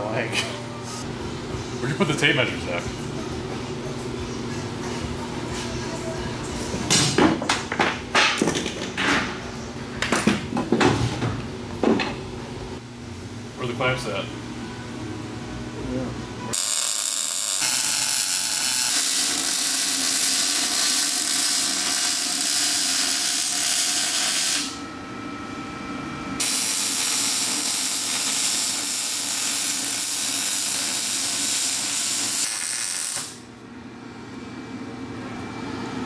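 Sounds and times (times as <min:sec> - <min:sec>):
welder crackling hiss: 0:16.6 - 0:24.8, 0:26.4 - 0:33.4.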